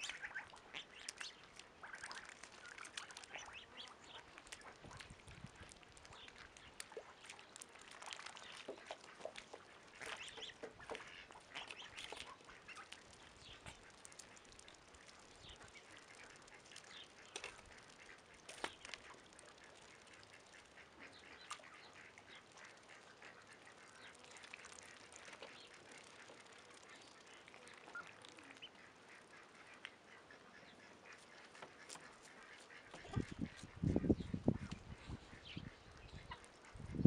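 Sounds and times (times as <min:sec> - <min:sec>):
ducks dabbling in water: 0:00.0 - 0:37.0
soft duck calls: 0:08.5 - 0:37.0.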